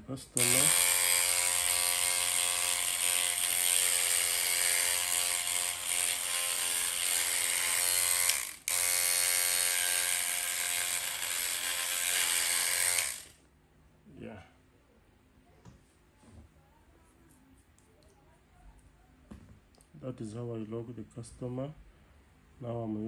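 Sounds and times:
electric dreadlock machine buzzing: 0:00.4 - 0:13.4.

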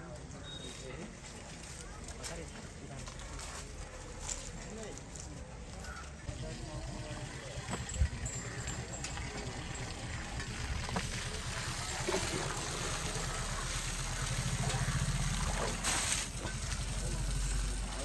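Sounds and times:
water splashing from a hose: 0:06.3 - 0:18.0.

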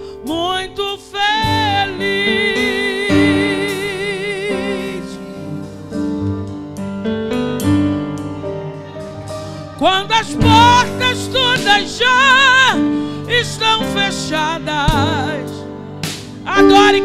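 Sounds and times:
band with keyboard bass and drums: 0:03.1 - 0:12.9, 0:13.6 - 0:17.0
woman singing with vibrato: 0:09.8 - 0:15.6.

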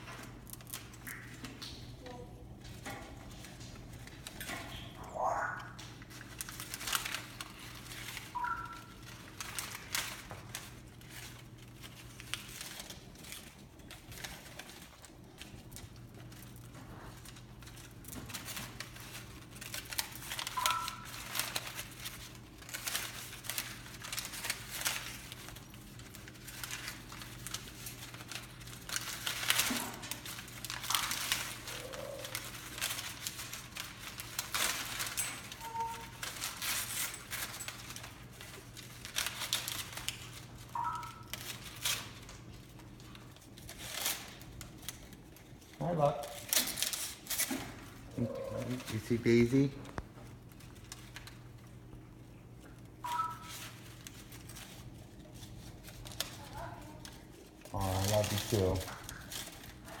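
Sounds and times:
bird chewing and tearing toy: 0:00.0 - 1:00.0
high bird squeaks: 0:08.4 - 0:08.9.

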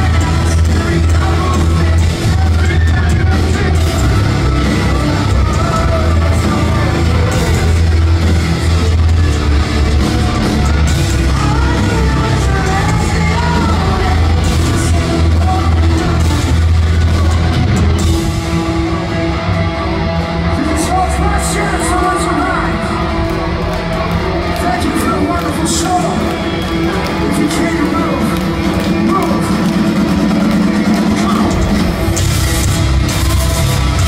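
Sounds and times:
person singing and shouting: 0:00.0 - 0:09.0, 0:09.8 - 0:17.5
live rock band: 0:00.0 - 0:34.0.

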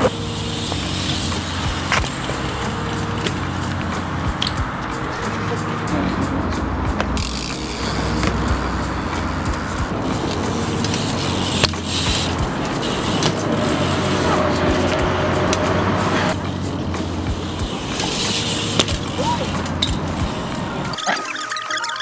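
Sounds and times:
bike tyres rolling on concrete: 0:00.0 - 0:21.0
knocks from bike landings: 0:18.8 - 0:20.2.

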